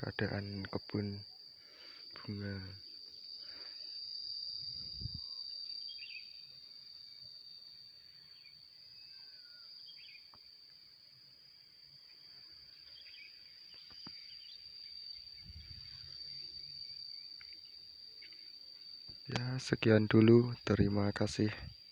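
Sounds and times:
insect drone: 0.0s - 21.9s
bird chirps: 5.1s - 6.4s, 8.3s - 10.4s, 12.8s - 16.0s.

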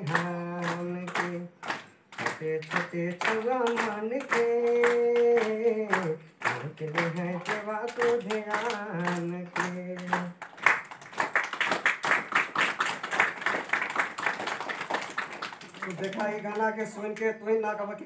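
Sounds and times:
person singing: 0.0s - 1.6s, 2.2s - 10.4s
rhythmic hand clapping: 0.0s - 17.3s.

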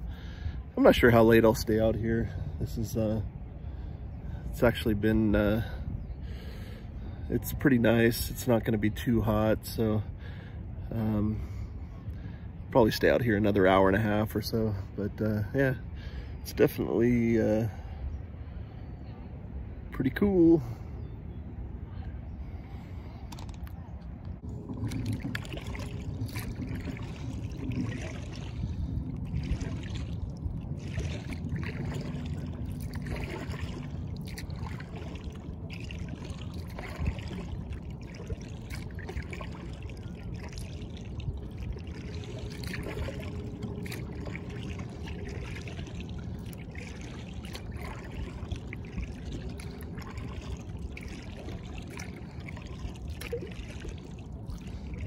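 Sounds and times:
water lapping against kayak hull: 0.0s - 21.0s, 22.0s - 55.0s
steady low rumble: 0.0s - 55.0s.

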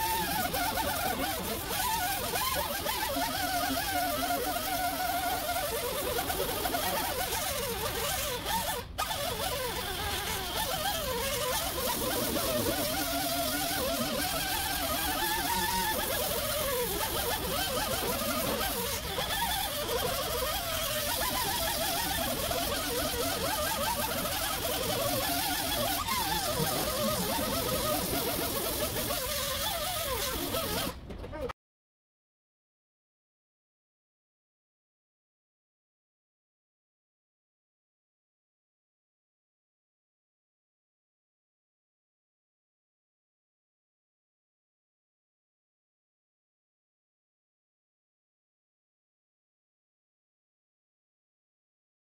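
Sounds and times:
air-powered rotary tool whirring: 0.0s - 31.0s.

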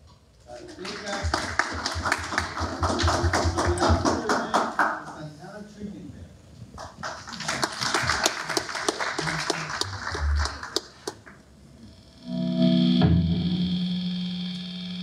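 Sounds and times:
audience applauding: 0.5s - 5.2s, 6.8s - 11.4s
distorted electric guitar note: 11.6s - 15.0s.

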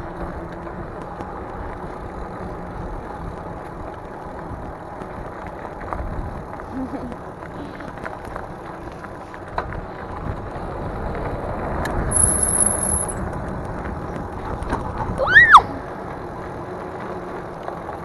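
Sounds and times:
tyres rolling on asphalt: 0.0s - 18.0s
thin high whine: 12.1s - 13.2s.

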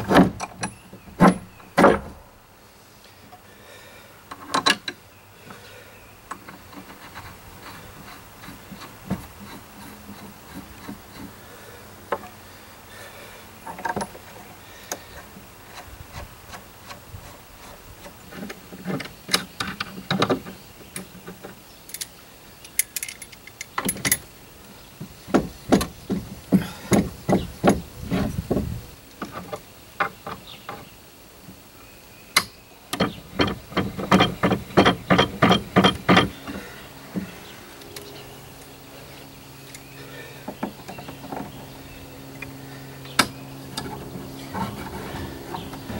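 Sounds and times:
metal clatter against wood: 0.0s - 2.2s, 6.3s - 11.5s, 12.1s - 12.4s, 13.6s - 24.3s, 25.0s - 30.9s, 32.4s - 37.4s
knocks against wood: 25.0s - 30.8s.

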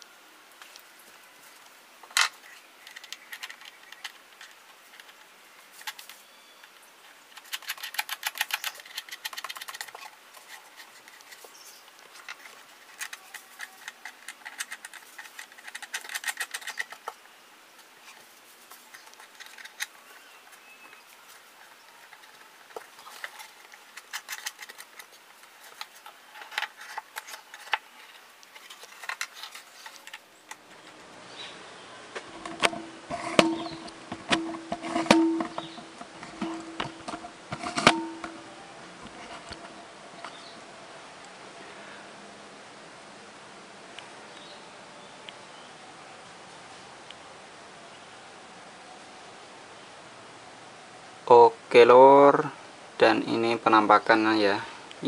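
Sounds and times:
metal bracket clicking and rattling: 12.1s - 17.2s, 21.9s - 31.0s, 32.4s - 38.4s.

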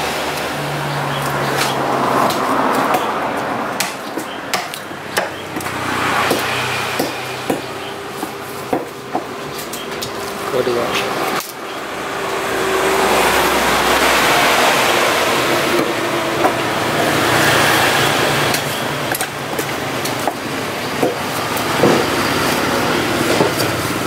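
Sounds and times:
vehicle engine running: 4.9s - 24.0s.

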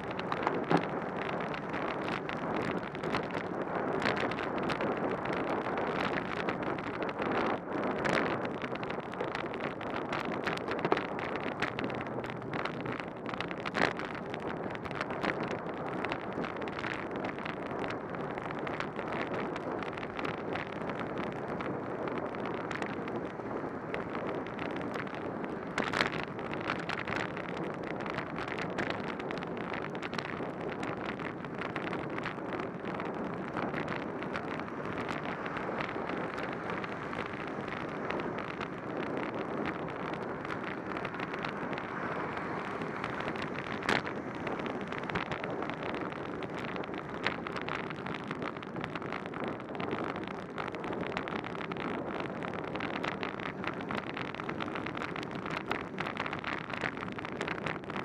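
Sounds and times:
small ticks: 0.0s - 58.0s
bicycle tyres hissing on wet road: 14.7s - 28.1s, 29.2s - 58.0s.

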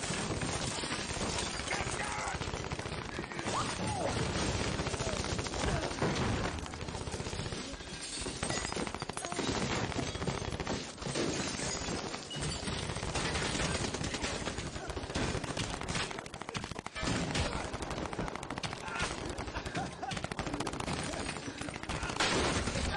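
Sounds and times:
rapid gunfire: 0.0s - 22.9s.

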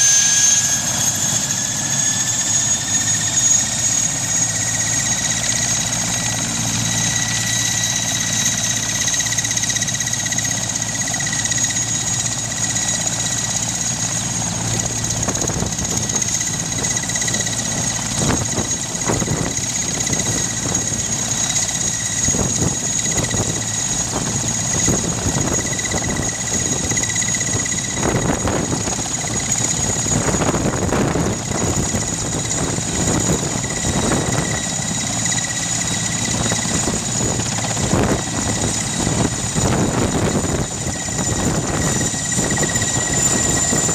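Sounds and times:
helicopter engine whine: 0.0s - 43.9s
helicopter rotor beat: 0.0s - 43.9s.

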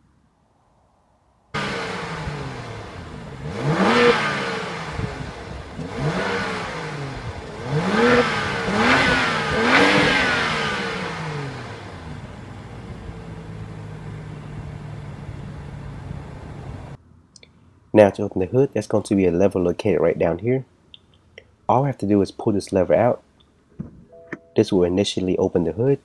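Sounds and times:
car engine idling and revving: 1.6s - 17.0s.

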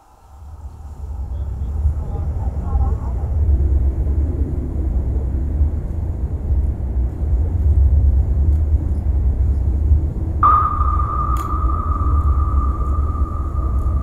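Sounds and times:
loud low rumble: 0.2s - 6.6s, 10.1s - 14.0s
steady high tone: 10.4s - 14.0s.

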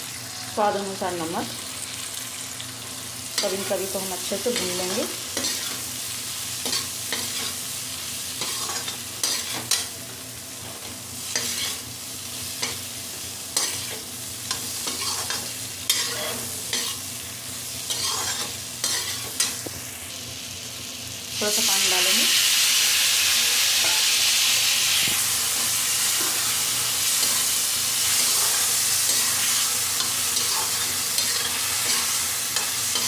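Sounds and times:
vegetables sizzling in a pan: 0.0s - 33.0s
metal spatula scraping a pan: 13.6s - 17.0s, 17.9s - 19.4s.

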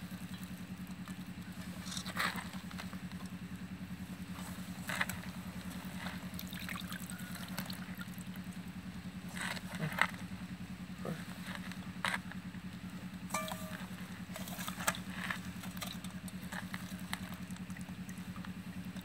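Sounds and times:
engine running with low hum: 0.0s - 19.0s
water dripping: 15.6s - 19.0s.

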